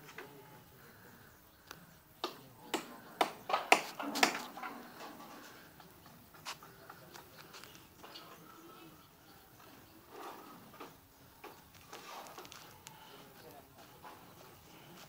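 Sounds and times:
hammering knocks: 0:02.2 - 0:05.0.

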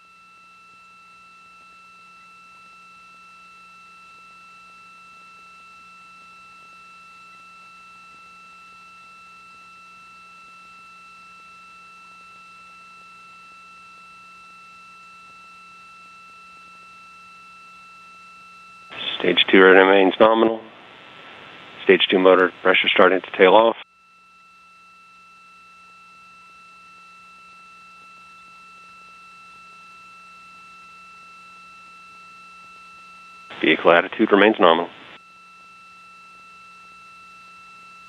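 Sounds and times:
faint low hum: 0:00.3 - 0:23.8, 0:26.4 - 0:35.2
commentator speaking: 0:19.0 - 0:20.7, 0:21.8 - 0:23.8, 0:33.5 - 0:34.9.

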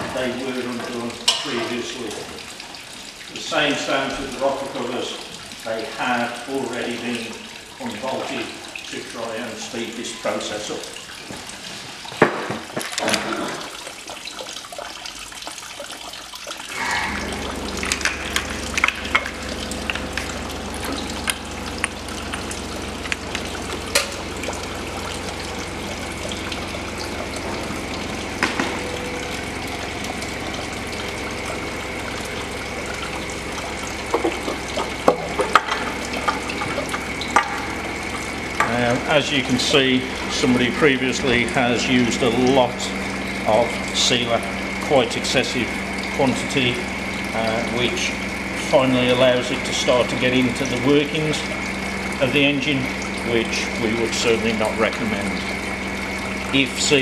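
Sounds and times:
low hum: 0:16.7 - 0:57.0.

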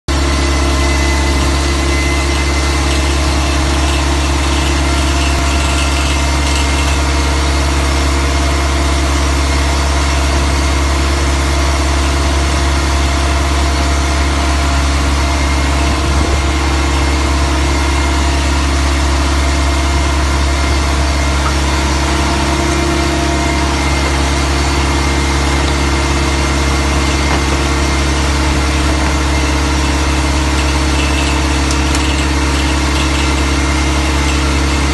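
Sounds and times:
drill rig power unit drone: 0:00.1 - 0:34.9.

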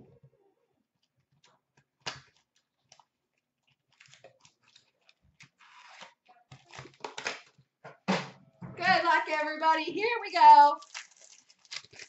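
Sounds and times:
packaging crinkling: 0:01.8 - 0:07.6, 0:10.8 - 0:12.0.

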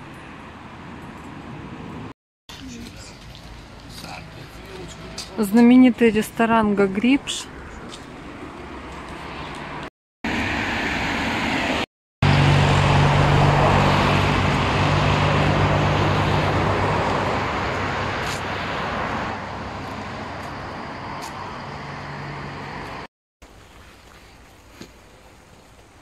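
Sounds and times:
vehicle passing by: 0:07.2 - 0:23.1.

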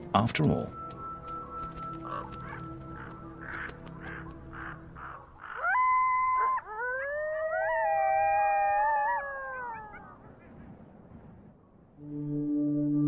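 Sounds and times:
wild canids howling: 0:01.1 - 0:10.4.

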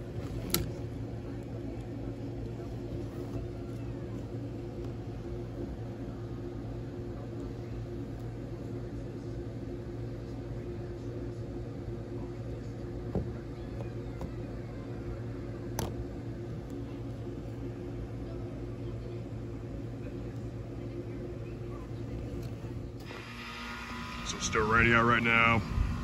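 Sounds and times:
low even hum: 0:00.0 - 0:26.0
wind: 0:21.9 - 0:26.0.

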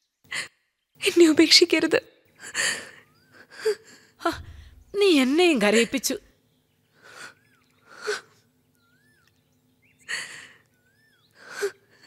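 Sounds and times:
woman weeping: 0:02.4 - 0:04.6.

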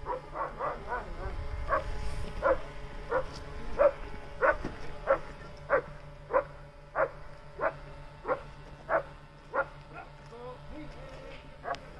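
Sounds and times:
dog barking rhythmically: 0:00.0 - 0:01.8, 0:02.4 - 0:09.8.

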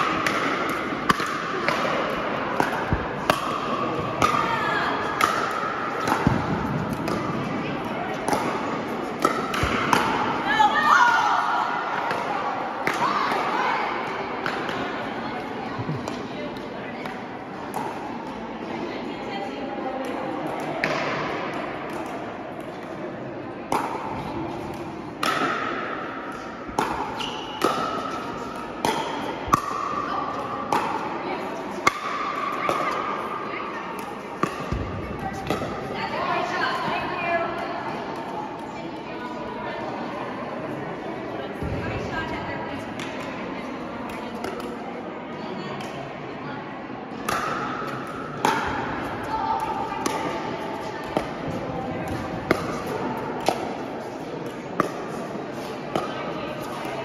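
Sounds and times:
paddles striking pickleball: 0:00.0 - 0:07.5, 0:23.7 - 0:31.1
background noise: 0:00.0 - 0:57.0.

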